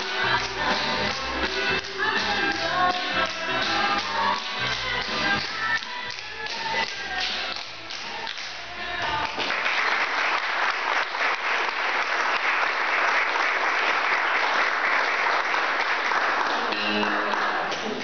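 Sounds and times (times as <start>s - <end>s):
music: 0.0s - 10.2s, 16.4s - 18.0s
audience applauding: 9.2s - 18.0s.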